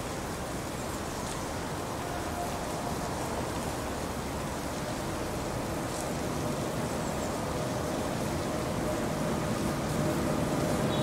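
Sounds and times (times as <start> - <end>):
electric locomotive train rumbling: 6.4 - 11.0.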